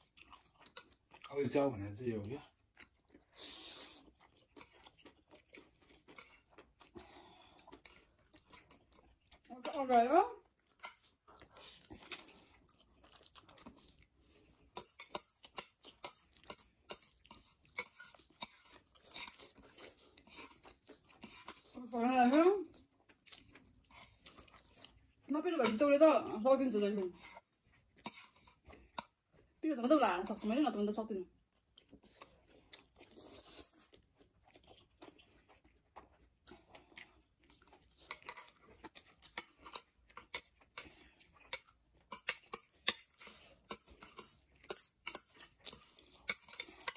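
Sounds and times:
people chewing noodles: 0:00.0 - 0:46.9
slurping noodles: 0:03.2 - 0:04.2.

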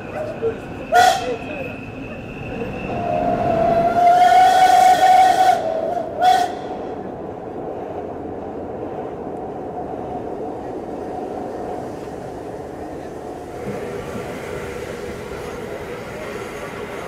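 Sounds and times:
moving train running noise: 0:00.0 - 0:17.0
steam locomotive whistle: 0:00.9 - 0:01.7, 0:02.8 - 0:06.9.

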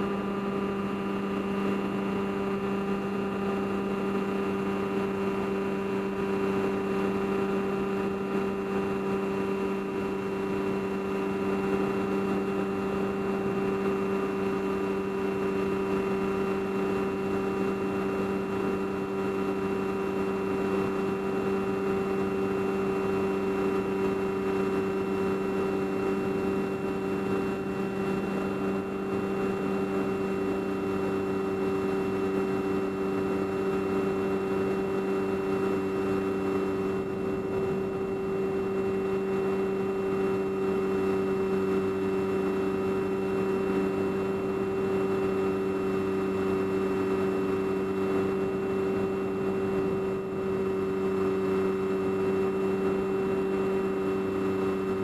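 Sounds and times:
model aircraft motor hum: 0:00.0 - 0:55.0.

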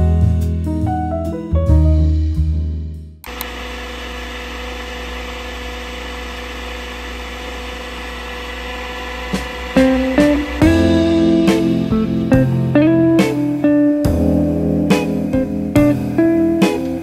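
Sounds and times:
coffee machine motor whir: 0:03.2 - 0:10.9.

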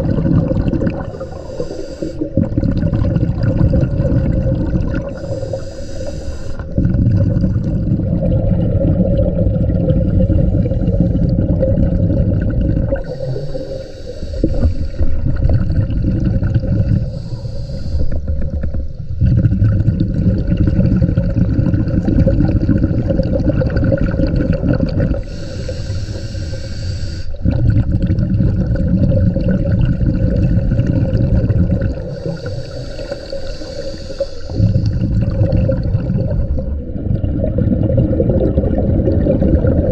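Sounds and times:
exhaled air bubbling: 0:00.0 - 0:39.9
regulator inhale hiss: 0:01.0 - 0:02.4, 0:05.1 - 0:06.8, 0:13.0 - 0:15.4, 0:16.9 - 0:19.1, 0:25.2 - 0:27.4, 0:32.1 - 0:35.3.

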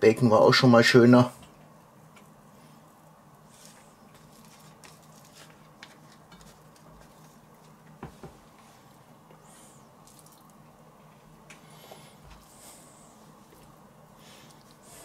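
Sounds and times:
low steady hum: 0:00.0 - 0:15.0
wet handling of raw meat: 0:09.9 - 0:10.6.

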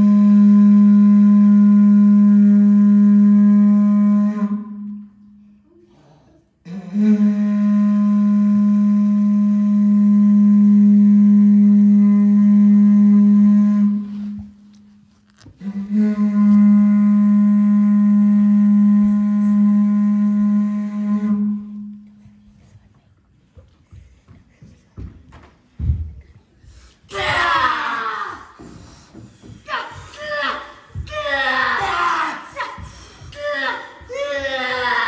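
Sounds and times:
conch-shell trumpet notes: 0:00.0 - 0:05.2, 0:06.7 - 0:14.6, 0:15.6 - 0:22.2.

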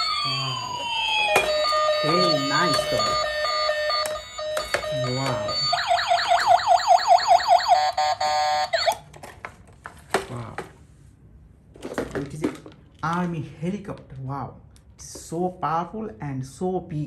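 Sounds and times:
electronic beeping tones: 0:00.0 - 0:08.9
electronic siren warble: 0:00.0 - 0:09.0.

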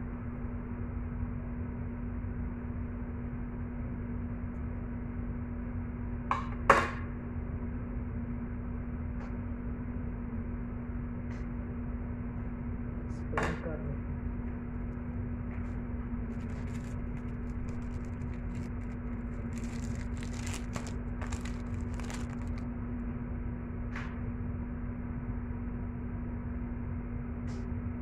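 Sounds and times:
low hum: 0:14.3 - 0:23.8.

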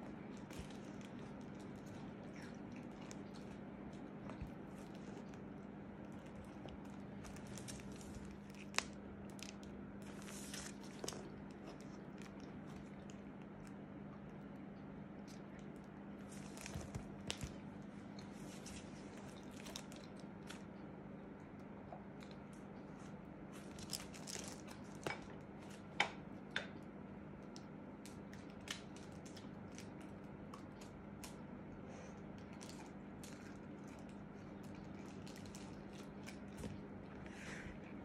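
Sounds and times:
steady low hum: 0:00.0 - 0:38.0
plastic pages crinkling: 0:00.1 - 0:13.8, 0:16.2 - 0:20.6, 0:23.6 - 0:25.1, 0:32.4 - 0:36.9.

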